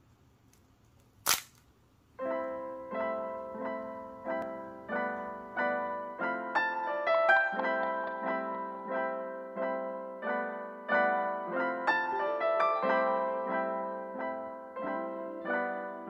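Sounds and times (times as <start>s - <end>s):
sharp crack: 0.5s - 1.7s
soft piano music: 2.2s - 16.0s.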